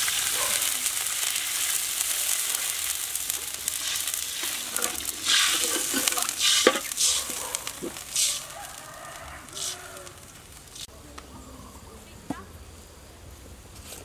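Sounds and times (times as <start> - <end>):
hot oil sizzling in a wok: 0.0 - 10.9
water being poured: 0.0 - 10.9
metal spatula scraping a wok: 3.7 - 8.5.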